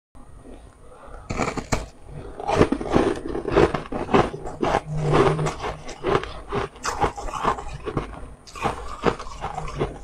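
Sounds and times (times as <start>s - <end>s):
chewing and crunching ice: 1.3s - 10.0s.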